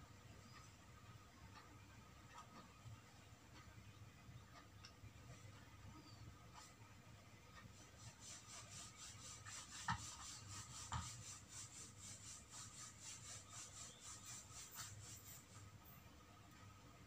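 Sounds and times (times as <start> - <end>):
hands rubbing cloth: 7.8 - 15.7.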